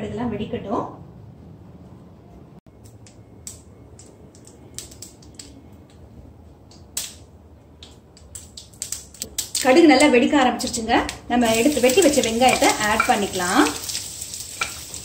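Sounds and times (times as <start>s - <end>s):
seeds popping in hot oil: 3.0s - 6.0s, 7.8s - 15.0s.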